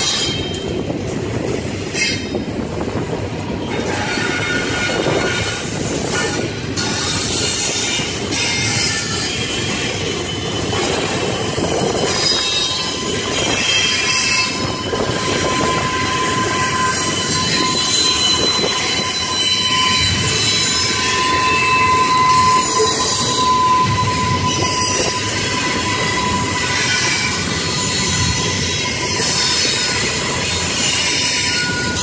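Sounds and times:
high wheel squeal: 0.0s - 32.0s
train wheels rumbling on rails: 0.0s - 32.0s.

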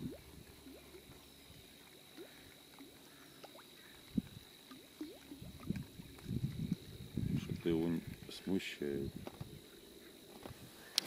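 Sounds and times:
faint short chirping calls: 0.7s - 5.4s.

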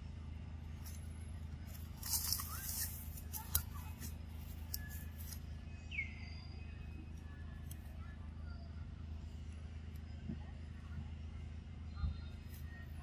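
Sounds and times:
dry leaves crackling: 0.8s - 5.4s.

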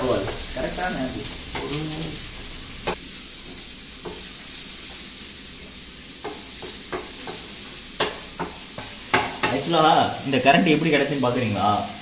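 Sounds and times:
onions sizzling in oil: 0.0s - 12.0s
spatula tapping and scraping pan: 2.8s - 5.0s, 6.2s - 9.7s.

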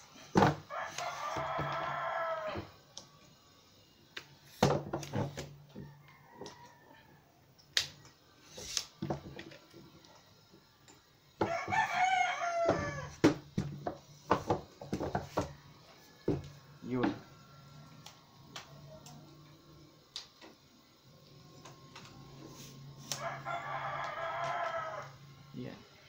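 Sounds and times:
rooster crowing: 0.2s - 3.0s, 5.6s - 7.5s, 11.4s - 13.4s, 14.4s - 19.7s, 21.4s - 25.6s.

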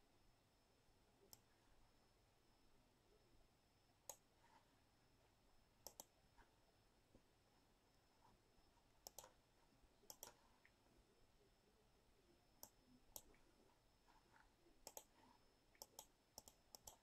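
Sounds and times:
faint sharp clicks: 5.8s - 6.1s, 9.0s - 9.4s, 10.1s - 10.8s, 14.8s - 17.0s.

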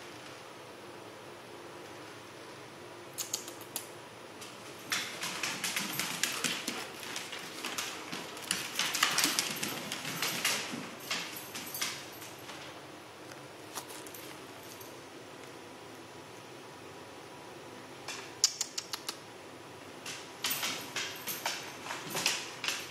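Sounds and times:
dog claws clicking on floor: 3.2s - 12.7s, 18.1s - 19.2s, 20.0s - 22.9s.

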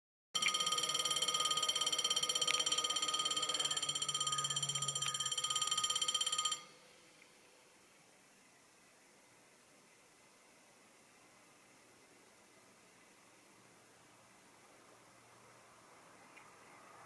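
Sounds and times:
level-crossing warning bell: 0.4s - 6.9s.

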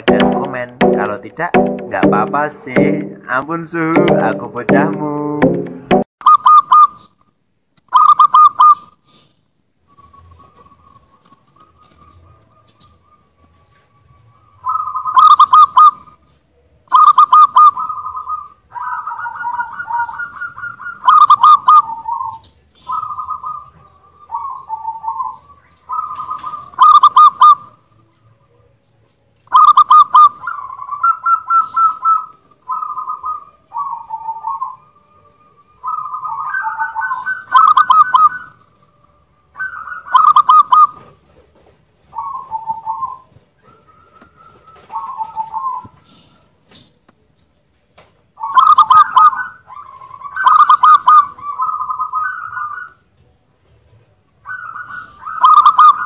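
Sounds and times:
dove cooing and trilling: 7.9s - 8.9s, 14.6s - 16.1s, 16.9s - 27.8s, 29.5s - 38.7s, 39.6s - 41.2s, 42.1s - 46.5s, 48.4s - 53.0s, 54.4s - 56.0s.

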